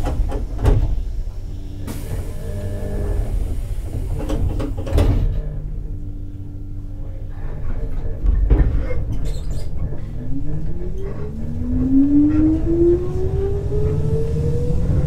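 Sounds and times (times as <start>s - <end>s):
low rumbles: 0.0s - 15.0s
traction motor whine rising: 10.3s - 15.0s.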